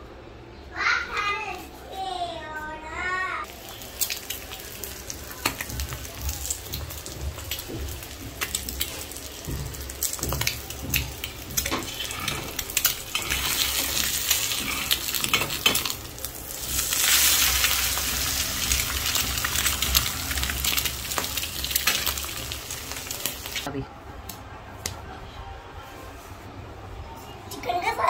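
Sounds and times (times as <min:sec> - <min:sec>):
egg sizzling in oil: 0:03.5 - 0:23.7.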